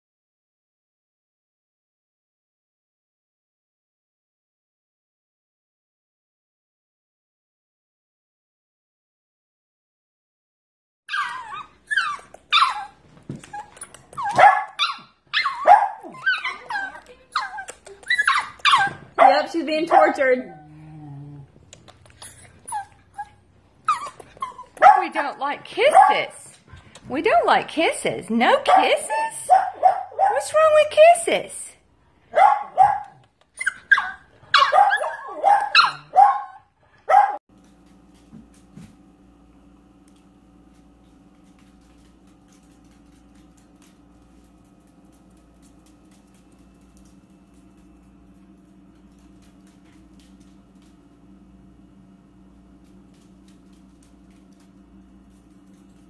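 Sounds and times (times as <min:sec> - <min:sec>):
puppy high calls: 0:11.1 - 0:20.6, 0:32.3 - 0:37.4.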